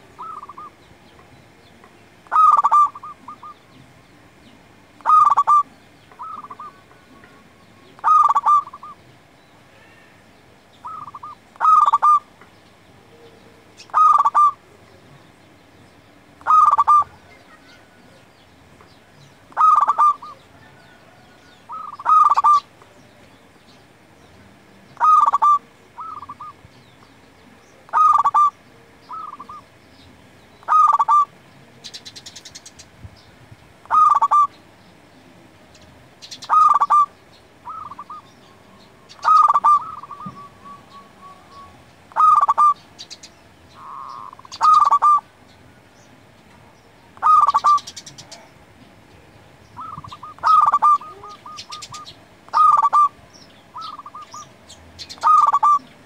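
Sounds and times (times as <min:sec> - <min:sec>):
dove cooing: 0:00.0 - 0:00.8, 0:02.2 - 0:04.0, 0:05.0 - 0:09.0, 0:10.8 - 0:12.3, 0:13.0 - 0:14.8, 0:16.4 - 0:18.2, 0:19.5 - 0:22.7, 0:24.9 - 0:26.7, 0:27.5 - 0:29.7, 0:30.6 - 0:32.6, 0:33.8 - 0:34.6, 0:36.2 - 0:42.8, 0:43.7 - 0:45.3, 0:47.2 - 0:48.6, 0:49.8 - 0:56.0
small birds chirping: 0:00.0 - 0:56.0.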